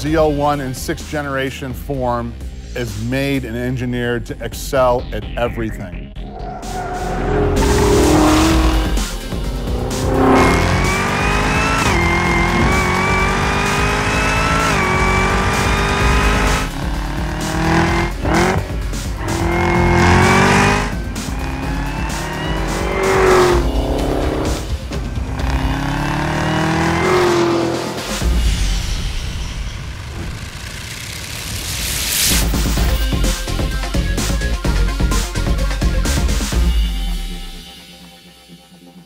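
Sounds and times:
music: 0.0 - 39.0
car engine accelerating hard: 6.2 - 28.4, 29.8 - 32.8.

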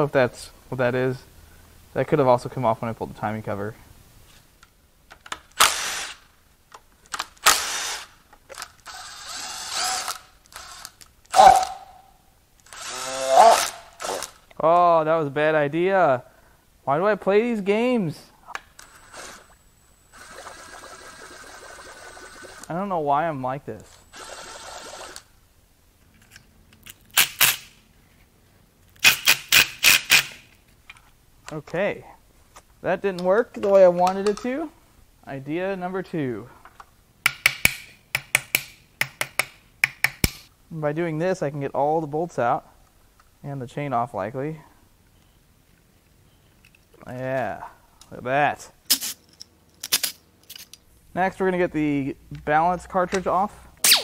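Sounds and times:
impact wrench bursts: 5.5 - 6.3, 7.4 - 8.1, 8.8 - 12.0, 12.6 - 14.4, 29.0 - 30.4
sharp metal clank: 11.4 - 12.1.

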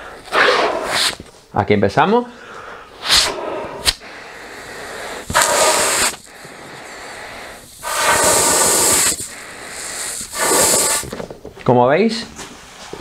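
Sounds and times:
man breathing: 0.0 - 0.3, 2.3 - 11.1
man blowing into wetsuit sleeve: 2.9 - 11.2.

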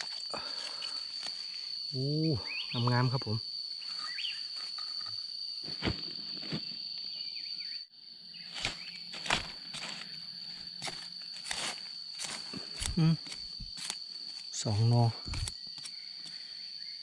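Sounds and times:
snapping of dry undergrowth: 0.0 - 1.4, 8.5 - 14.5, 15.2 - 16.4
high-pitched insect drone: 0.0 - 17.0.

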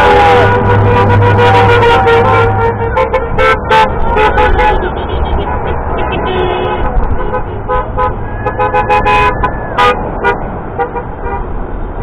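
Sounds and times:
vehicle horns honking: 0.0 - 11.6
traffic rumble: 0.0 - 12.0.

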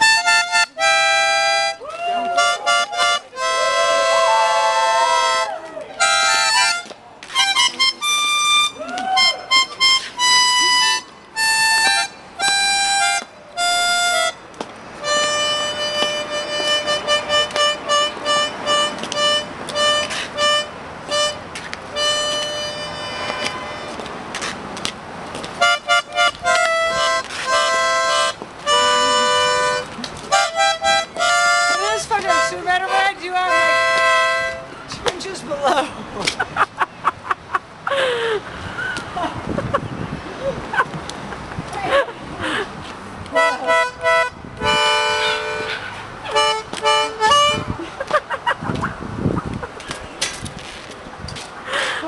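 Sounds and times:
instrumental music of held chords: 0.0 - 1.8, 9.4 - 23.9, 25.6 - 34.7, 43.4 - 47.8.

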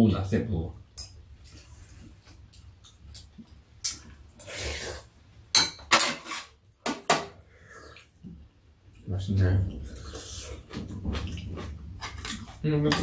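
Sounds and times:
spoons and chopsticks clinking bowls: 12.0 - 13.0.

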